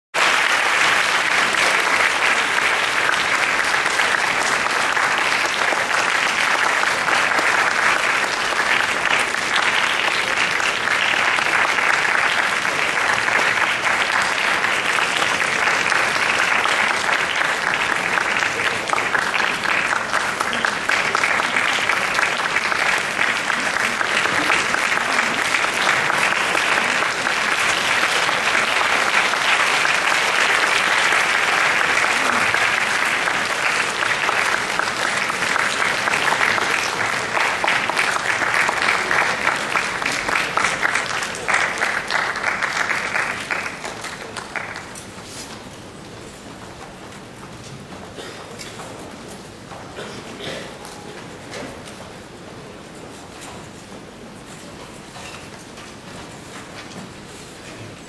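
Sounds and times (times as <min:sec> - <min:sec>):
audience applauding: 0:00.1 - 0:46.3.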